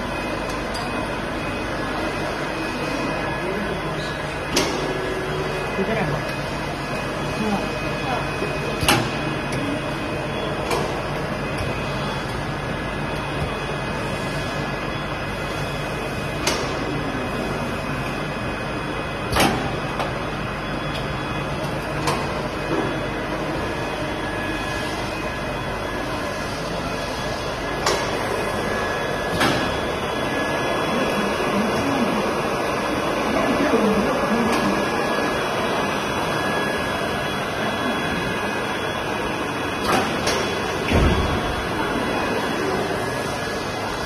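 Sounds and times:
machine mechanical hum: 0:00.0 - 0:44.0
sharp mechanical clicks and knocks: 0:19.3 - 0:20.1.

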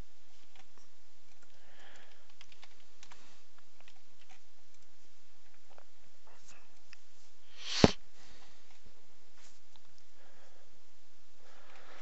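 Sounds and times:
steady low hum: 0:00.0 - 0:12.0
keyboard and mouse clicks: 0:00.4 - 0:05.9.

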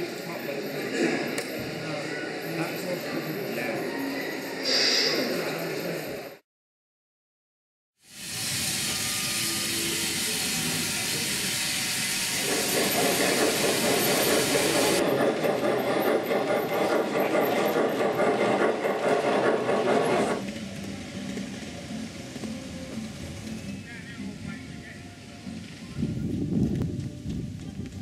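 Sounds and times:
steam hissing: 0:08.0 - 0:23.9
steam locomotive chuffing: 0:08.0 - 0:24.4.

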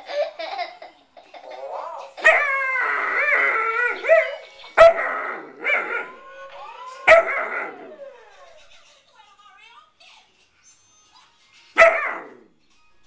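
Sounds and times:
puppy howling: 0:02.2 - 0:08.7.

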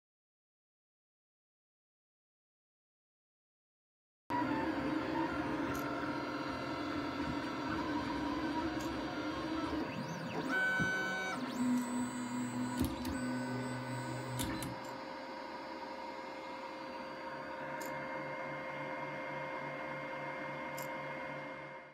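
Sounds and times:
stepper motors whining: 0:04.3 - 0:18.0
machine hum with low pulse: 0:04.3 - 0:21.9.

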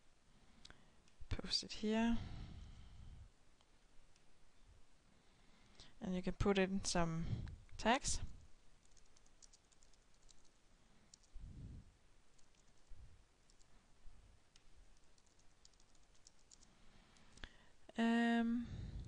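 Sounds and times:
typing on keyboard: 0:08.8 - 0:11.4, 0:12.3 - 0:13.7, 0:15.0 - 0:17.4.

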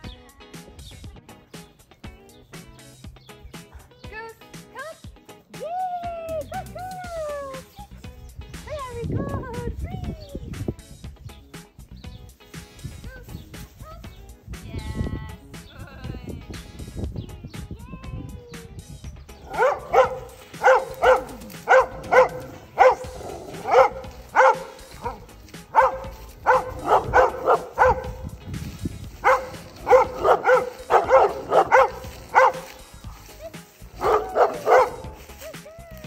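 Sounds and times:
background music: 0:00.0 - 0:36.0
dog barking: 0:19.4 - 0:28.4, 0:29.2 - 0:32.8, 0:34.0 - 0:35.2.

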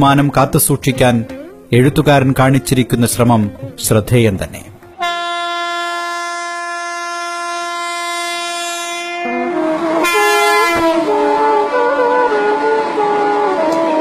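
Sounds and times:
train horn blast: 0:05.0 - 0:14.0.

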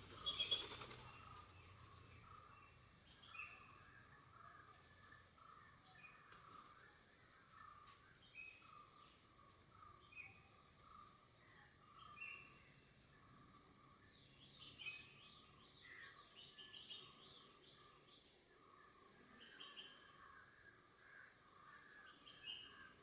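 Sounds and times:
bird chirps: 0:00.0 - 0:06.8
high insect drone: 0:00.0 - 0:23.0.

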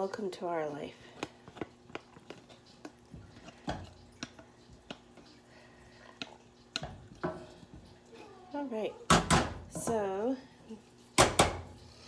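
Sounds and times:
spoon scraping metal: 0:01.4 - 0:07.8.

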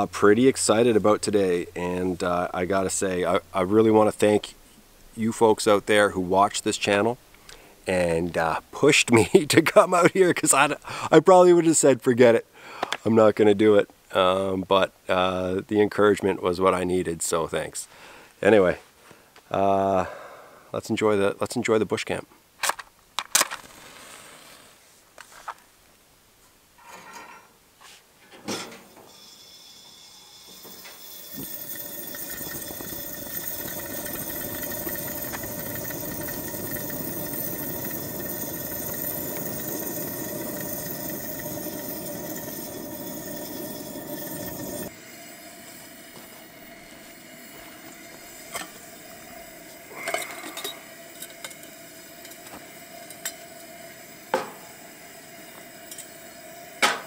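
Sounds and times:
camp stove burner hissing: 0:23.6 - 0:24.9, 0:28.9 - 0:57.0.

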